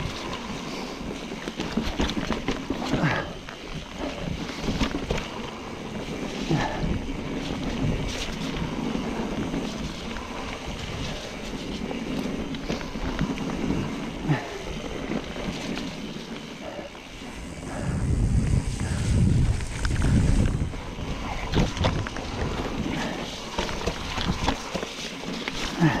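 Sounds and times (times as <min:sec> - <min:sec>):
bike knocking and rattling: 0:00.0 - 0:26.0
bike tyres on wet dirt: 0:00.0 - 0:26.0
wind on microphone: 0:16.6 - 0:24.8.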